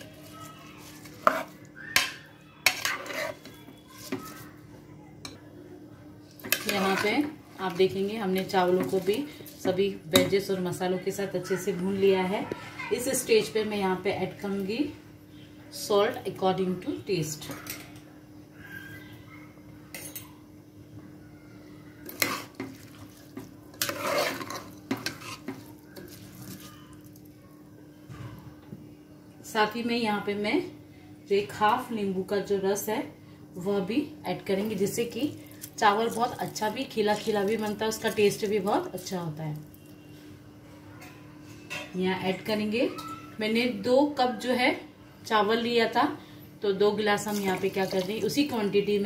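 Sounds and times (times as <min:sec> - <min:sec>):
spoon scraping a metal pot: 0:00.8 - 0:04.2, 0:06.4 - 0:07.8, 0:22.0 - 0:23.0, 0:23.7 - 0:26.6.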